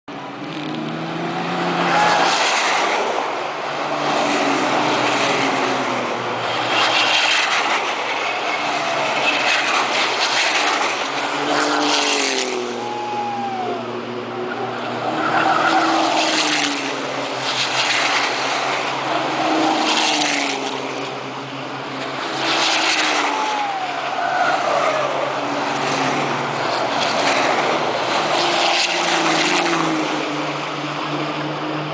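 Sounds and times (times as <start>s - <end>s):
racing truck engines passing: 0.1s - 31.9s.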